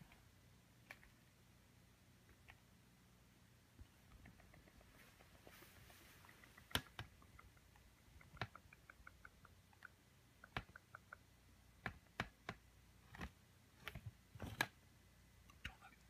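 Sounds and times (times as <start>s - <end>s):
soft little ticks: 3.8s - 12.6s
sharp clicks and taps: 3.8s - 14.8s.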